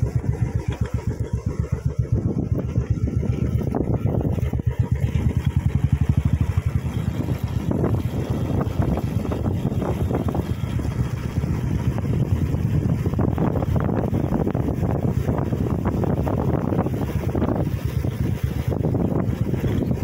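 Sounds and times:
motorcycle engine running: 0:00.0 - 0:20.0
wind noise on microphone: 0:00.0 - 0:20.0.

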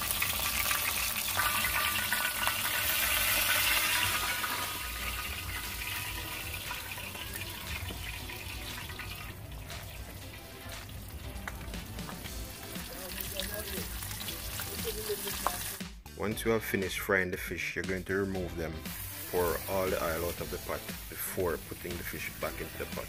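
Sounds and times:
fish sizzling in oil: 0:00.0 - 0:15.8, 0:18.8 - 0:23.0
water splashing and running: 0:00.0 - 0:15.8.

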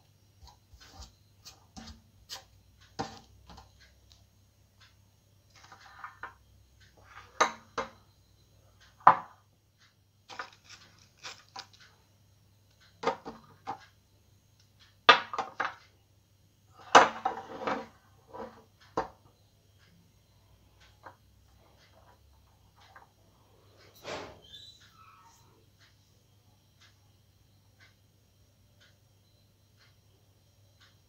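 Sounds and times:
scraping and handling noises: 0:10.3 - 0:11.9, 0:17.0 - 0:18.7.

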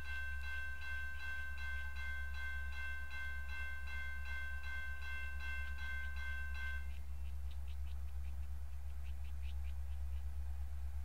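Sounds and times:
railroad crossing bell ringing: 0:00.0 - 0:07.1
steady low hum: 0:00.0 - 0:11.0.

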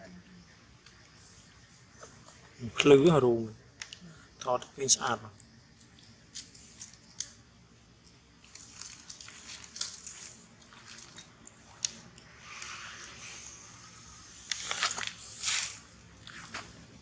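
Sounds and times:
dry leaves and twigs crackling: 0:05.4 - 0:17.0
twigs snapping: 0:08.4 - 0:12.0.

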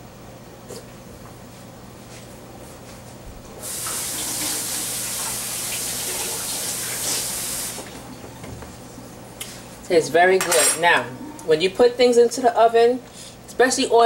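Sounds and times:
kitchen tap running: 0:03.6 - 0:08.2.

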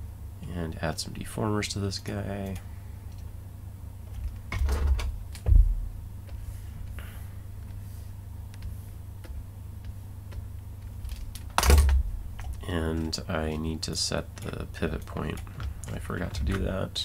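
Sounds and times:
steady low hum: 0:00.0 - 0:17.0
low thump: 0:05.4 - 0:05.9.

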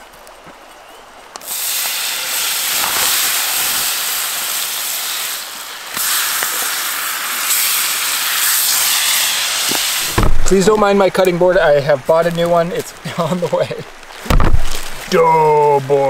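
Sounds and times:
steak sizzling in a frying pan: 0:01.4 - 0:10.2.

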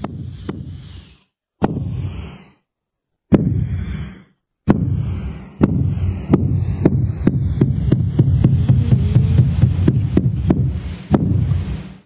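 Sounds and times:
sharp knock: 0:01.6 - 0:02.1, 0:03.3 - 0:03.8, 0:04.7 - 0:11.6
crowded hall rumble: 0:05.9 - 0:11.9.

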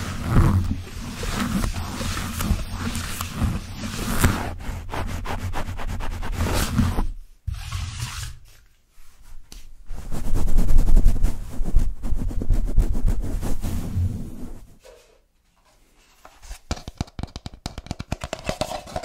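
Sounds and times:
lint roller crackling on microphone: 0:00.0 - 0:04.8
paint roller rubbing microphone grille: 0:00.0 - 0:08.5, 0:09.9 - 0:14.7.

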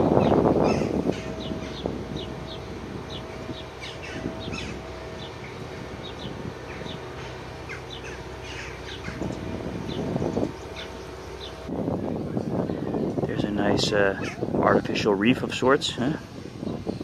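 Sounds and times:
small birds chirping: 0:00.0 - 0:11.7.

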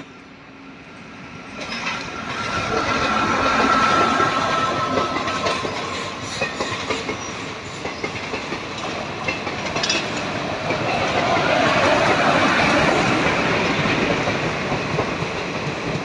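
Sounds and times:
passing locomotive rumble: 0:00.0 - 0:16.0
train wheels clattering over joints: 0:01.6 - 0:16.0.

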